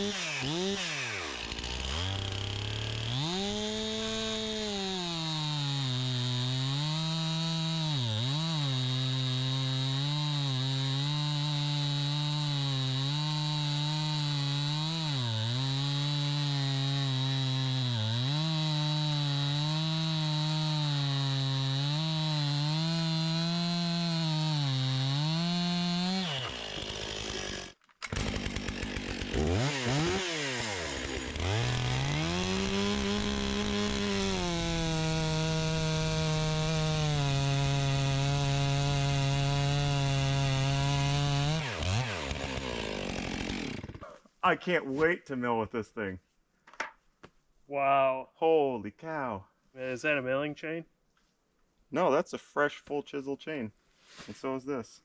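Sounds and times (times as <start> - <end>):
chainsaw revving: 0.0 - 44.0
chainsaw cutting log: 0.0 - 44.2.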